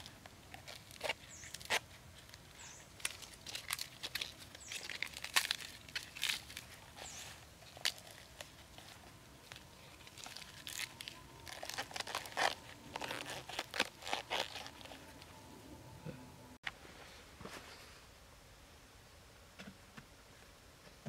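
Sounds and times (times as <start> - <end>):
bamboo crackling and snapping: 0.0 - 15.4.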